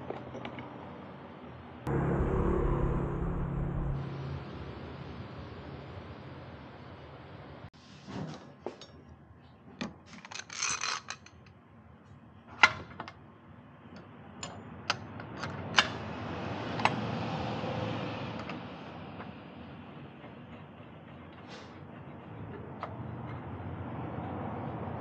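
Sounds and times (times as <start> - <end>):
low rushing noise: 1.9 - 6.8.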